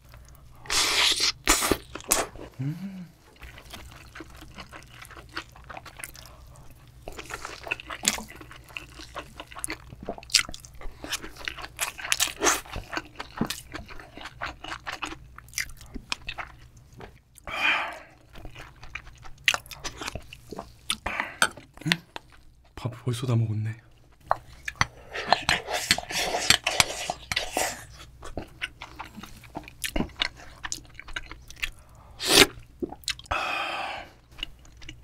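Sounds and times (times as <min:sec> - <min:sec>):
wet chewing with smacks: 0:03.3 - 0:17.5, 0:24.1 - 0:33.3.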